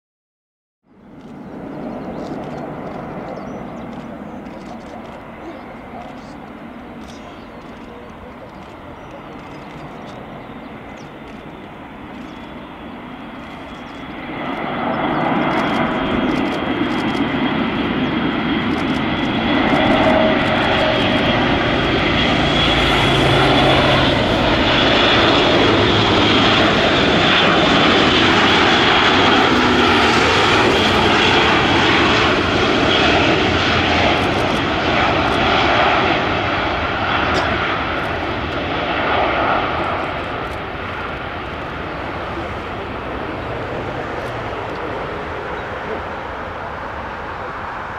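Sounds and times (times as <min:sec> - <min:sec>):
propeller aircraft flying past: 0:00.9 - 0:47.9.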